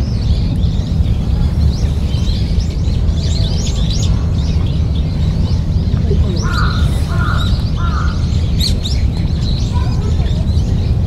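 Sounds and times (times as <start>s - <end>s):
small birds chirping: 0.0s - 11.0s
steady low rumble: 0.0s - 11.0s
crow cawing: 6.4s - 8.3s.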